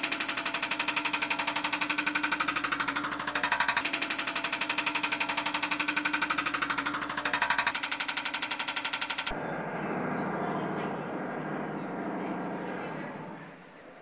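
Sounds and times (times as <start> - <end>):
hydraulic breaker hammering concrete: 0.0 - 9.4
loader engine running: 0.0 - 13.7.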